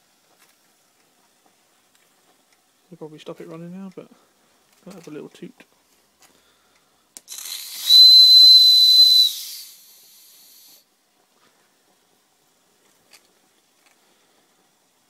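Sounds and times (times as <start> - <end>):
valve click: 7.2 - 10.7
steam hissing: 7.2 - 10.9
high-pitched steam whistle toot: 7.3 - 10.8.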